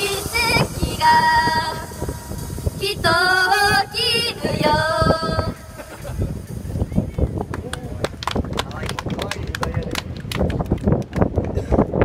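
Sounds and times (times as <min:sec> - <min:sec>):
women singing pop through pa: 0:02.8 - 0:05.6.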